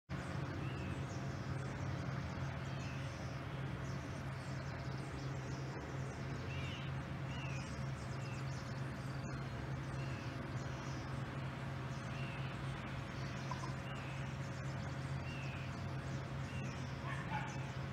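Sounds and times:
idling jet engines drone: 0:00.1 - 0:17.9
small birds chirping: 0:00.1 - 0:17.9.

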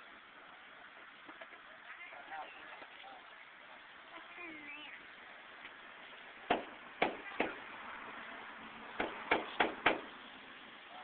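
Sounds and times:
faint background hiss: 0:00.0 - 0:11.0
sharp knocks: 0:06.5 - 0:07.6, 0:09.0 - 0:10.1.

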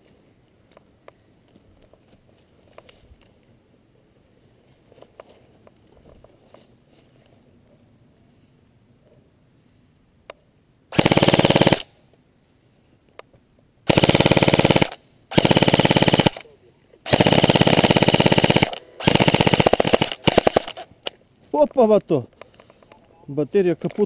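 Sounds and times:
airsoft rifle full-auto bursts: 0:10.9 - 0:11.9, 0:13.9 - 0:16.5, 0:17.1 - 0:21.1.

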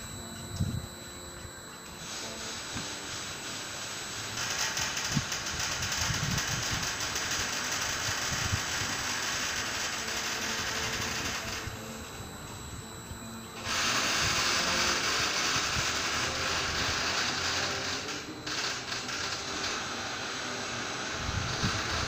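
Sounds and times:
mechanical whirr: 0:00.0 - 0:22.0
loud even hiss: 0:13.6 - 0:22.0.

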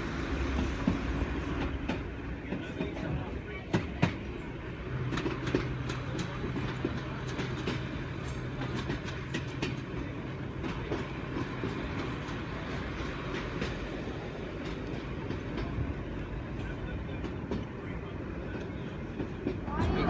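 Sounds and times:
train wheels rumbling and clicking: 0:00.0 - 0:20.0.

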